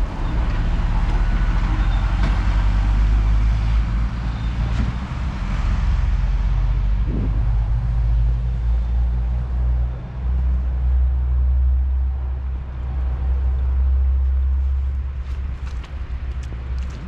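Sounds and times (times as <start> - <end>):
tram rumbling along track: 0.0 - 17.0.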